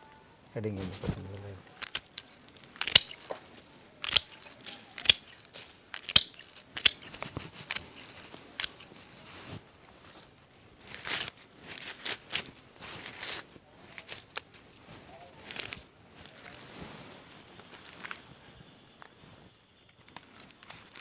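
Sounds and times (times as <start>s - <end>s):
leafy stems rustling: 0.6s - 21.0s
stems being snipped: 1.7s - 3.4s, 4.0s - 9.0s.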